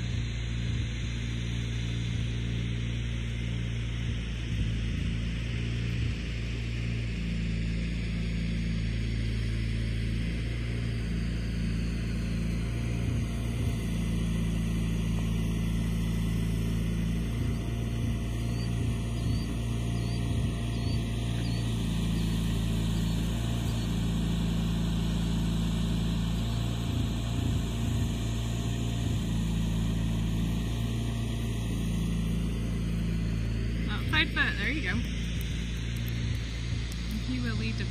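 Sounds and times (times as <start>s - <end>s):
steady low rumble: 0.0s - 37.9s
faint high chirps: 17.3s - 24.6s.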